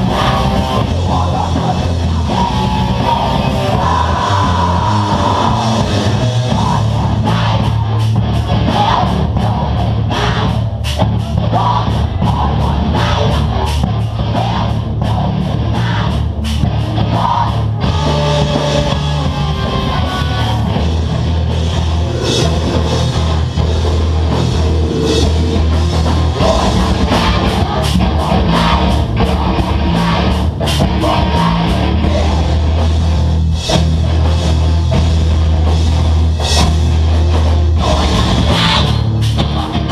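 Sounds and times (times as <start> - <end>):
person singing: 0.0 - 8.0, 17.0 - 20.8, 26.0 - 32.8, 37.8 - 39.9
heavy rock band playing: 0.0 - 39.9.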